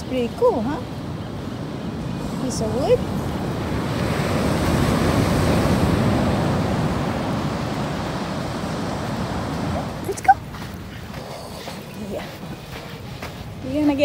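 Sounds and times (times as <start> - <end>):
ocean wave breaking: 1.6 - 10.9.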